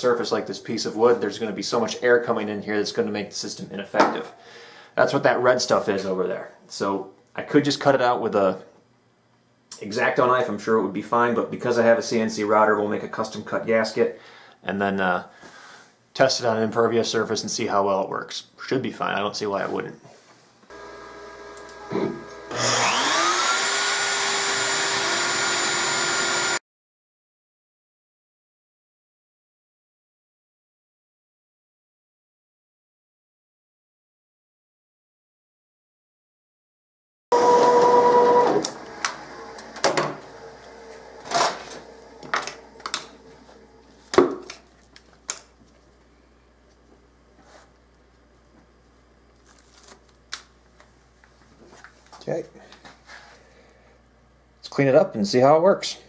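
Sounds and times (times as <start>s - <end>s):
router spindle whining: 20.7s - 26.6s, 37.3s - 44.0s
faint machine hum: 38.6s - 56.0s.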